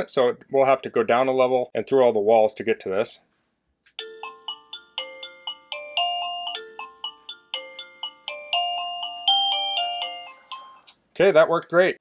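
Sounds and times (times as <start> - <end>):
doorbell chime melody: 4.0 - 10.9.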